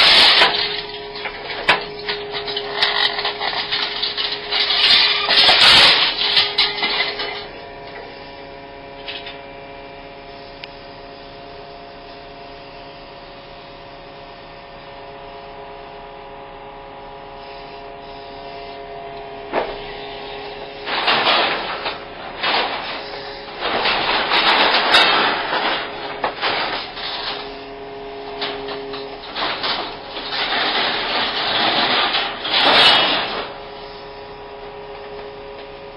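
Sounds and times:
scrap metal clattering: 0.0s - 7.5s, 19.5s - 33.7s
excavator engine hum: 0.0s - 35.9s.

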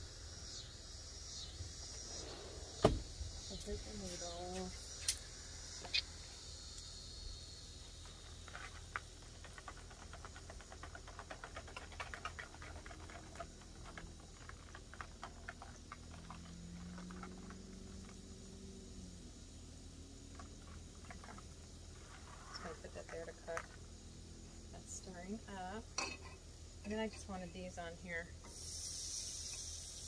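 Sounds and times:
faint clicks and crackles: 8.0s - 18.2s.

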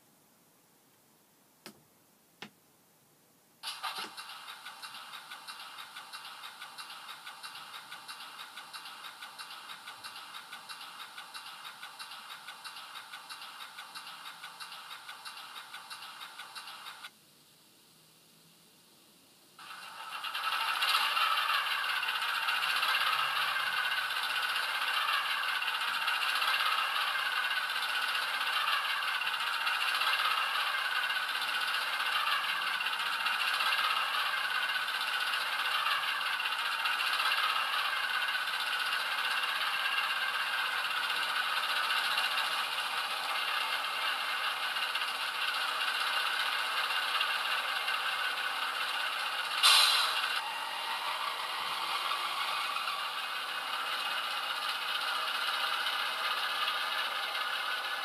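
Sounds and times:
model diesel engine idling: 20.1s - 58.0s.

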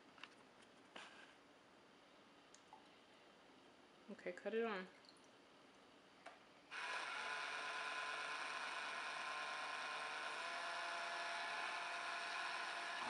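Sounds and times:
small electric motor whirring: 6.7s - 13.0s.

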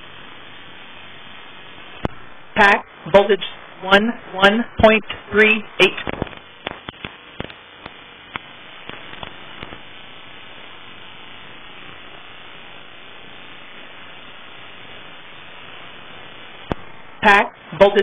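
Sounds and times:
static hiss: 0.0s - 18.0s
sharp clicks: 6.0s - 9.8s.

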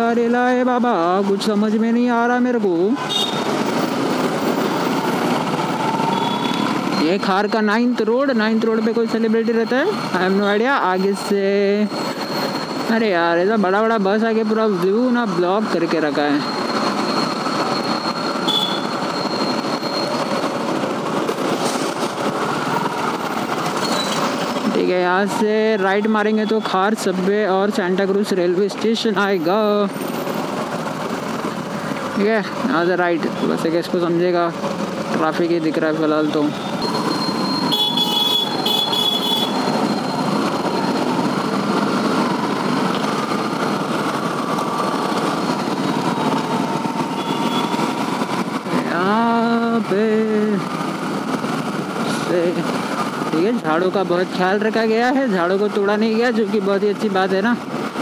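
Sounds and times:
traffic engines rumbling: 0.0s - 58.0s
short high beep: 36.5s - 40.9s.

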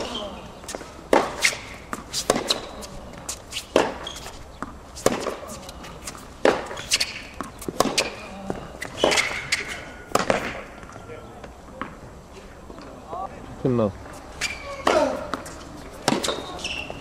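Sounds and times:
tennis ball hit by racket: 0.0s - 10.9s, 14.4s - 16.9s
tennis ball bouncing: 0.0s - 12.0s, 14.1s - 17.0s.

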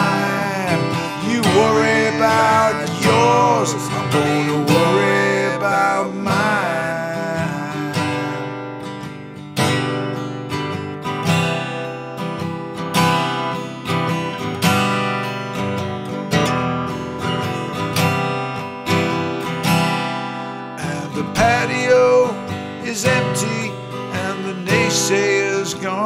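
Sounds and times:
acoustic guitar strumming: 0.0s - 26.0s.

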